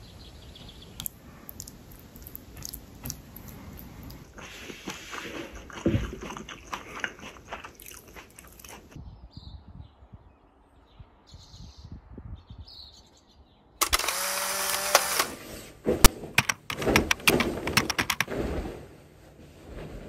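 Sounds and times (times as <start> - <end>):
bed linen flapping and snapping: 15.9 - 20.0.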